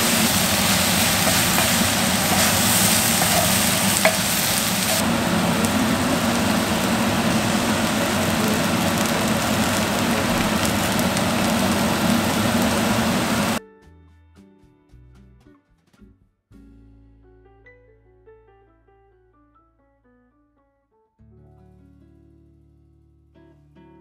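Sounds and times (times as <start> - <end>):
wooden spatula stirring: 0.0 - 7.9
vegetables sizzling in skillet: 0.0 - 13.6.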